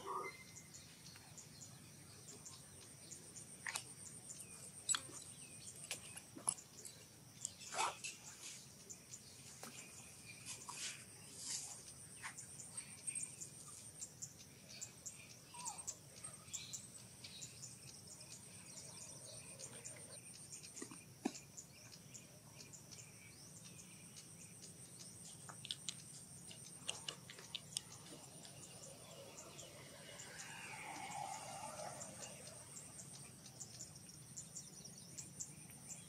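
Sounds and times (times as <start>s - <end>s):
bird-like chirps and ticks: 0.0s - 36.0s
high-pitched insect drone: 27.9s - 34.1s.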